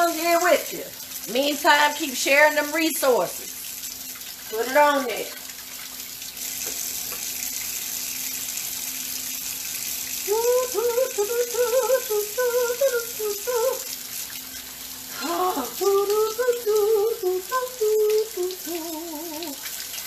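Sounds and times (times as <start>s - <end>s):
woman humming: 10.3s - 13.9s, 15.2s - 19.6s.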